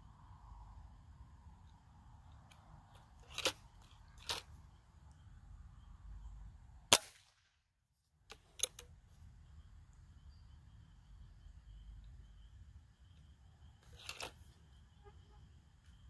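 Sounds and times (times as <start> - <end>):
pellet rifle shot crack: 6.9 - 7.6.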